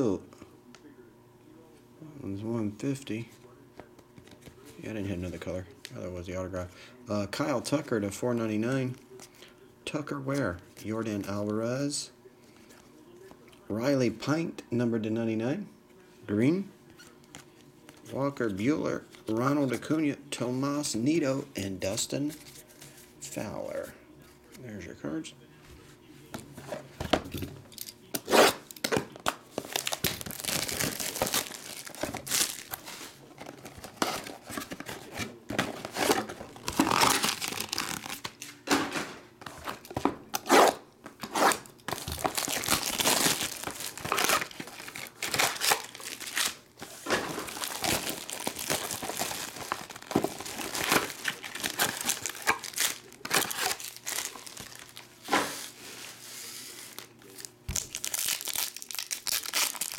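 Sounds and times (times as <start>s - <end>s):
foil packs rustling: 29.5s - 38.5s, 41.2s - 59.9s
shrink-wrap crinkling and tearing: 29.6s - 38.5s, 41.3s - 55.1s, 56.8s - 59.9s.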